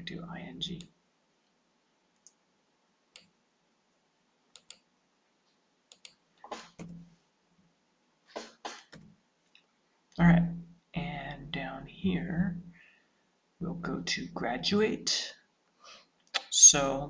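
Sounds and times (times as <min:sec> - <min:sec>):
mouse clicks: 0:04.5 - 0:04.8.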